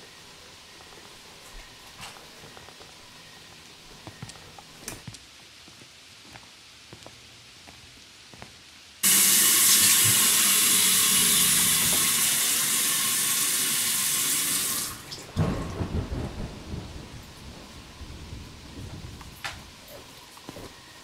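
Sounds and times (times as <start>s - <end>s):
sink tap running: 9.0s - 15.3s.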